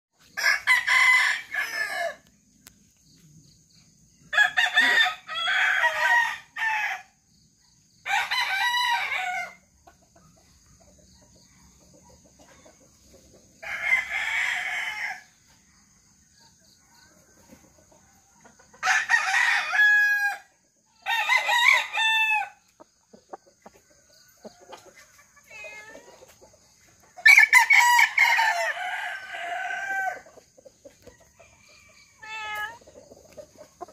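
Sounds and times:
roosters crowing: 0.2 - 2.3, 4.3 - 7.2, 8.0 - 9.7, 13.5 - 15.4, 18.8 - 26.2, 27.2 - 30.4, 31.2 - 33.9.

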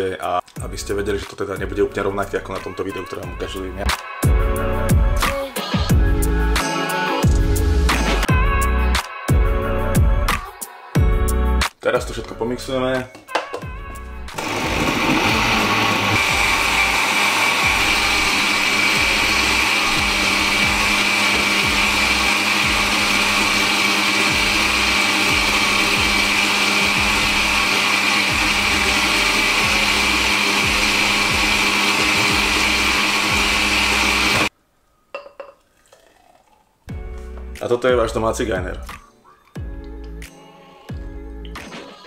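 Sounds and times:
blender running with high whine: 14.3 - 34.5.

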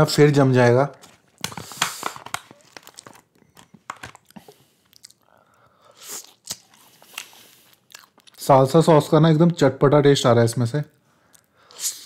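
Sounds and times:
person chewing: 1.4 - 8.4.

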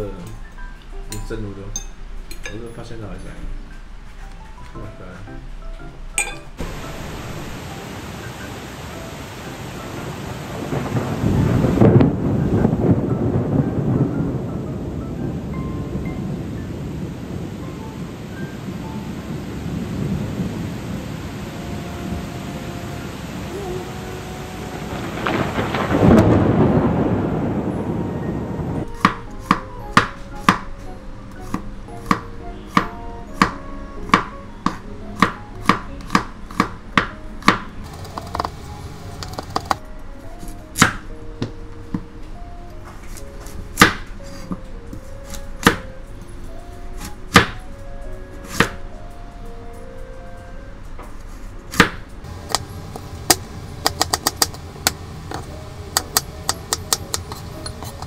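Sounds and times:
rain: 0.0 - 58.0
thunderclap: 9.4 - 29.3
knife chopping on plastic board: 31.4 - 37.6, 48.5 - 48.8.

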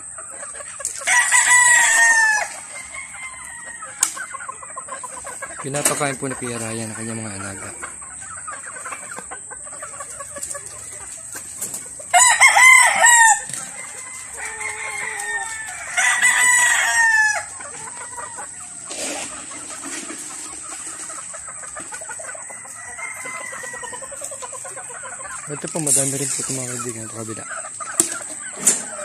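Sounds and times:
chickens clucking softly: 0.0 - 12.2, 16.5 - 29.0
rooster crowing: 1.0 - 4.3, 12.1 - 18.5, 22.3 - 24.2.

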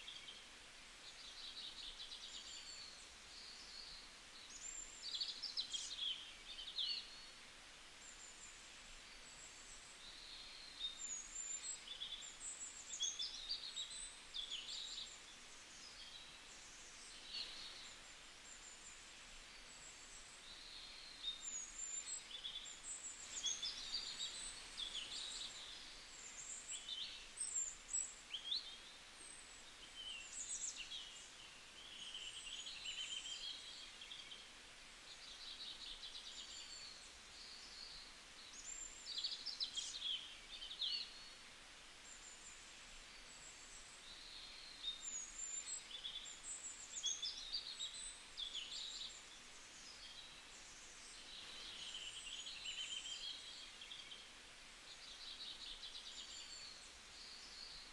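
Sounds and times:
faint steady hiss: 0.0 - 57.9.

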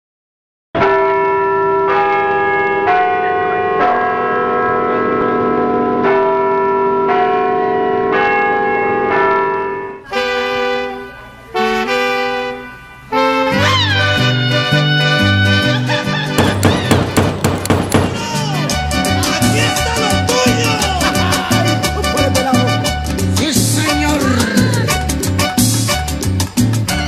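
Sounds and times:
music: 9.6 - 27.0
bells chiming: 16.2 - 24.5.

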